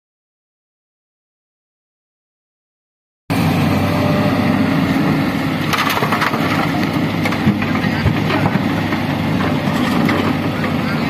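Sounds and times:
excavator running: 3.3 - 11.0
soil and stones landing in truck bed: 5.7 - 8.5.

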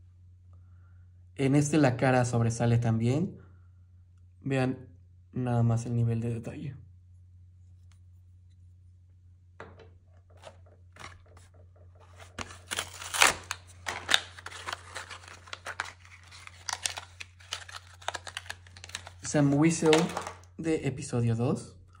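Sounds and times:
faint low hum: 0.0 - 22.0
packaging crinkling and tearing: 10.4 - 20.5.

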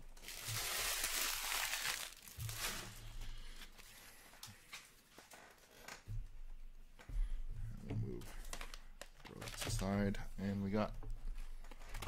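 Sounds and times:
trading cards rustling: 0.2 - 3.9.

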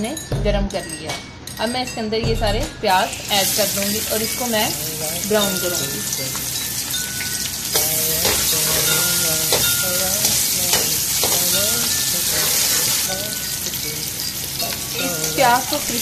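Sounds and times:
onions sizzling in hot oil: 3.2 - 16.0
metal spoon scraping a pan: 5.3 - 15.0.

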